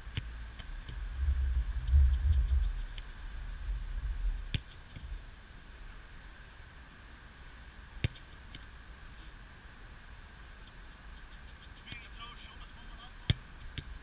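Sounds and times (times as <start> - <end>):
irregular low rumble: 0.0 - 5.4
football kicked: 13.2 - 13.9.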